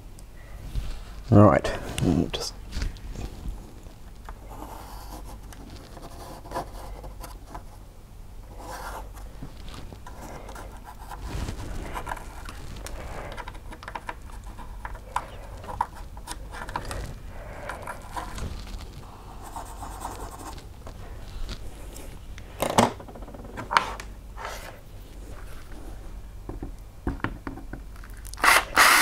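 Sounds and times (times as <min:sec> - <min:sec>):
pencil scratching: 0:04.5 - 0:07.5, 0:08.5 - 0:09.4, 0:19.1 - 0:20.6.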